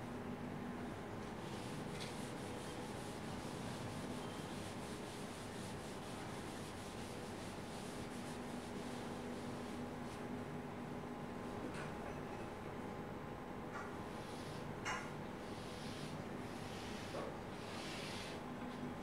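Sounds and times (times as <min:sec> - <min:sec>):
board duster rubbing board: 0:15.5 - 0:18.4.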